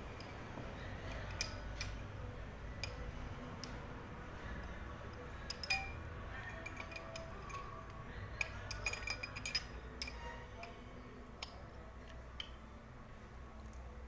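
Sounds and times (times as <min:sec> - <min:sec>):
spanner clicking on metal: 0:01.1 - 0:02.1, 0:02.8 - 0:03.0, 0:03.6 - 0:03.8, 0:05.1 - 0:10.8.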